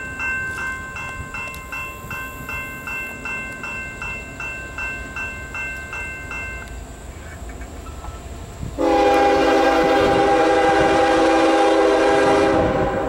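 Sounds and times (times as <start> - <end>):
railroad crossing bell ringing: 0.0 - 8.3.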